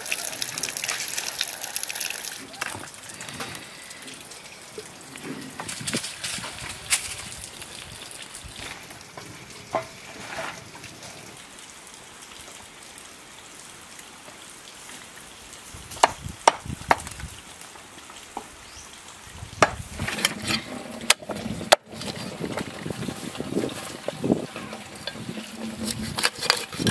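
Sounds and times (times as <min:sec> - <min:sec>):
food sizzling: 0:00.0 - 0:11.4.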